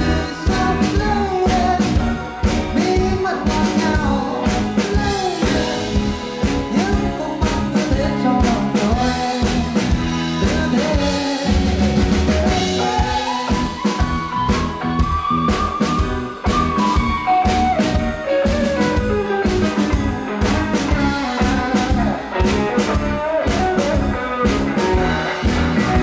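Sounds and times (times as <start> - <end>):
man singing into a microphone: 0.0 - 13.8, 20.9 - 26.0
drum kit beat: 0.0 - 26.0
electric guitar: 0.0 - 26.0.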